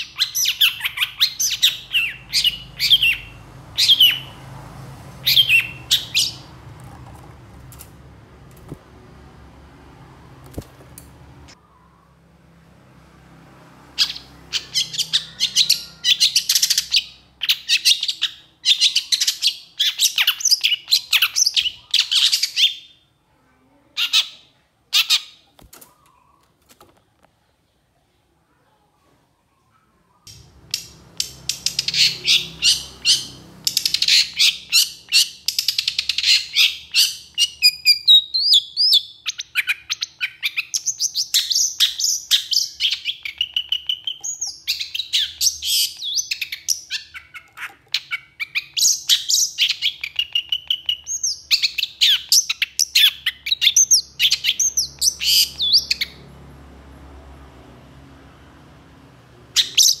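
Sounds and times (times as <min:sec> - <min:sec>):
bird chattering and whistling: 0:00.0 - 0:04.4, 0:05.2 - 0:06.5, 0:14.0 - 0:23.0, 0:30.3 - 0:56.2, 0:59.6 - 1:00.0.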